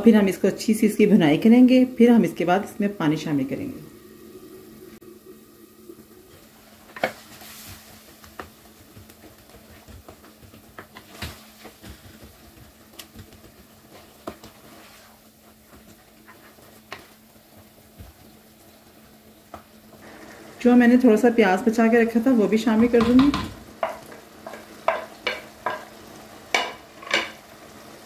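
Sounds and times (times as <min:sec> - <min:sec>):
faint steady hum: 0:00.0 - 0:28.0
meat frying: 0:05.0 - 0:28.0
spoon knocking against pot: 0:23.0 - 0:25.9.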